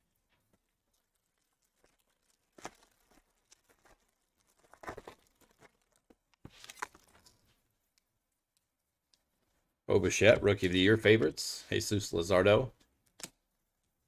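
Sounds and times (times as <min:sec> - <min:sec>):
foil wrapper crinkling and tearing: 0:00.0 - 0:07.4.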